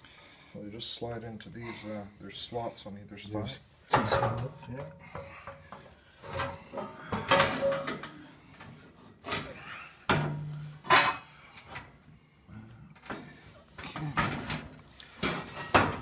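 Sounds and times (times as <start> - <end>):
metal scraping and clunking on metal: 3.8 - 12.0, 13.0 - 16.0.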